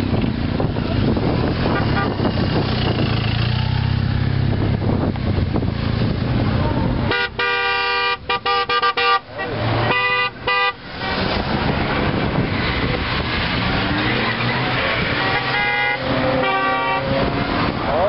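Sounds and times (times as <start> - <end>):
passing car engines and tyres: 0.0 - 18.0
car horns honking: 1.6 - 2.4, 7.1 - 11.5, 13.8 - 17.7.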